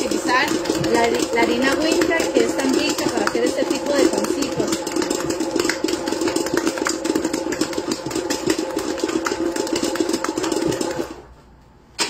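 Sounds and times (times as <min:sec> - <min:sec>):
dough knocking and rattling in bowl: 0:00.0 - 0:11.2
stand mixer motor humming: 0:00.0 - 0:11.2.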